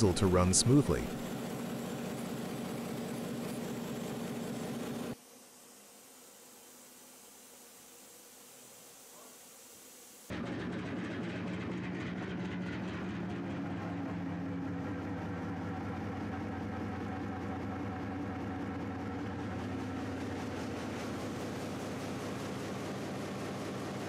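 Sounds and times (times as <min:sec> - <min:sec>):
diesel engine running: 0:00.0 - 0:05.2, 0:10.3 - 0:24.0.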